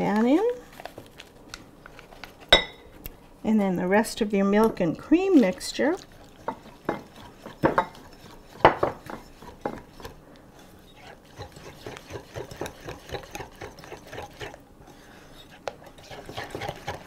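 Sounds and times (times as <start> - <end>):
whisk beating in ceramic bowl: 4.6 - 10.2, 11.0 - 14.6, 16.0 - 17.0.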